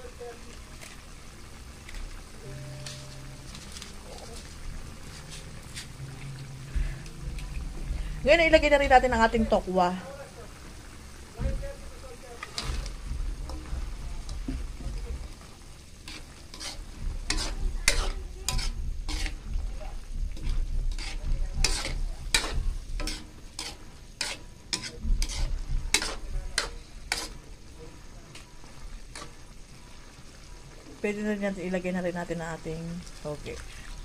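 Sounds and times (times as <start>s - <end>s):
metal spatula scraping wok: 2.4s - 9.6s, 12.4s - 27.5s, 28.3s - 29.4s
broth bubbling: 4.3s - 31.0s.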